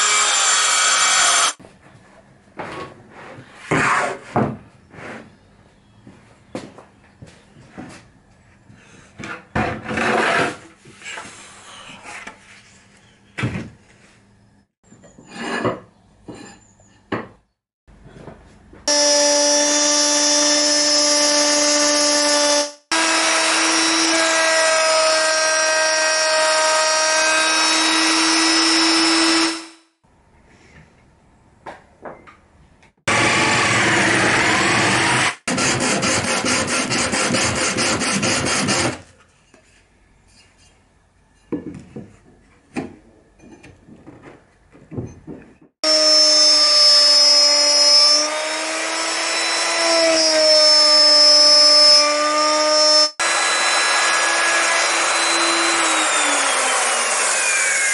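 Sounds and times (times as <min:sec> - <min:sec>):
drill sanding wood: 0:00.0 - 0:01.6, 0:18.9 - 0:29.8, 0:33.1 - 0:39.0, 0:45.8 - 0:57.9
router cutting plywood: 0:00.0 - 0:01.6, 0:18.9 - 0:29.8, 0:33.1 - 0:39.0, 0:45.8 - 0:57.9
knocks and scrapes of board handling: 0:02.6 - 0:05.4, 0:08.8 - 0:14.1, 0:41.4 - 0:45.8.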